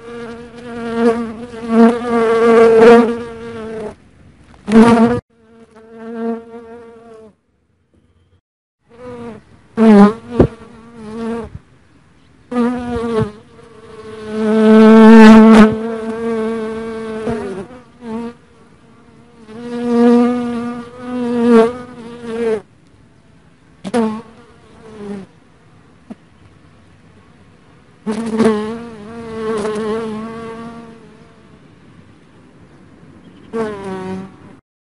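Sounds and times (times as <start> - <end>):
bee buzzing in flight: 0.0 - 4.0, 4.6 - 7.4, 8.9 - 11.6, 12.5 - 22.6, 28.1 - 31.4, 33.5 - 34.4.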